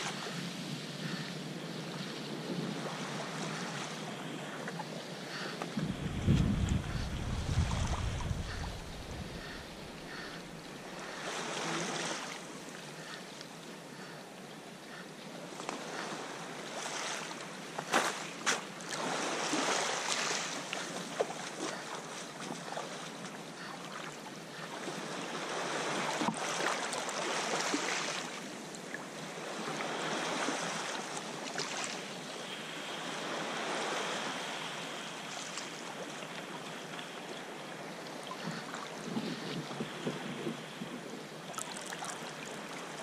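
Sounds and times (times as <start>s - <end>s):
ocean swell against cliffs: 5.8s - 12.2s.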